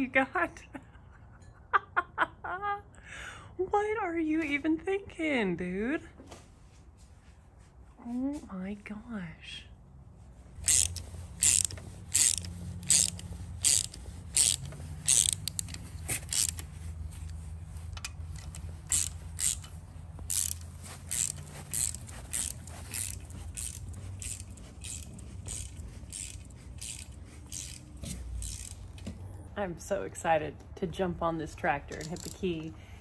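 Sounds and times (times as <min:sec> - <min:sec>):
ratchet wrench clicking: 0:10.6 - 0:17.4, 0:18.0 - 0:29.0, 0:31.9 - 0:32.4.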